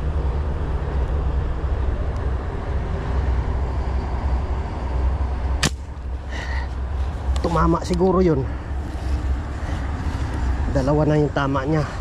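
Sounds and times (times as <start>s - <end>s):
low rumbling background noise: 0.0s - 12.0s
fishing gun firing snap: 5.6s - 5.9s.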